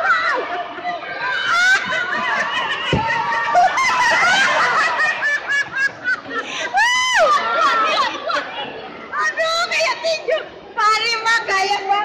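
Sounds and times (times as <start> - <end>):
children shouting and laughing: 0.0 - 12.0
low thump: 2.9 - 3.3.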